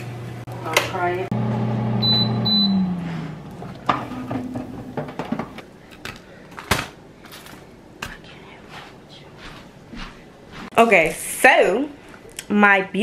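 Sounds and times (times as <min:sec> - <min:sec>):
fan hum spinning down: 0:00.0 - 0:05.8
appliance beeping: 0:01.4 - 0:05.0.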